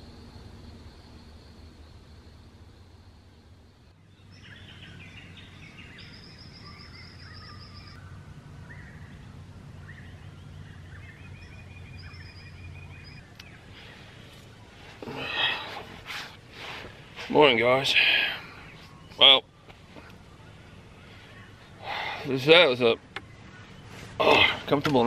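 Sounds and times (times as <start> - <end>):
low steady hum: 0.0 - 25.0
birds calling and trilling: 3.8 - 25.0.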